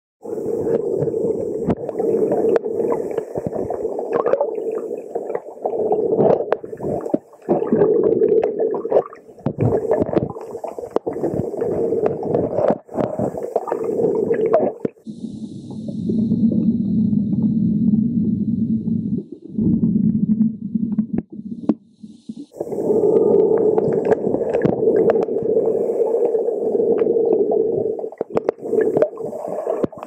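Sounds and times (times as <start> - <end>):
water sloshing and gurgling: 0.2 - 15.1, 15.7 - 30.0
low hum: 15.1 - 25.3.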